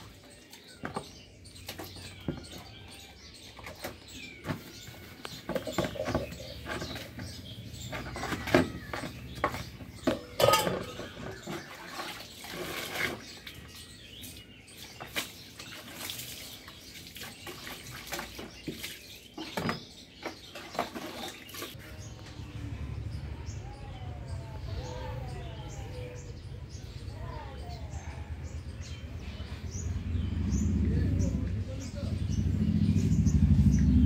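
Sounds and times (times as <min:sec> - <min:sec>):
water splashing: 0:07.9 - 0:19.7
steel dishes clinking: 0:10.2 - 0:11.2.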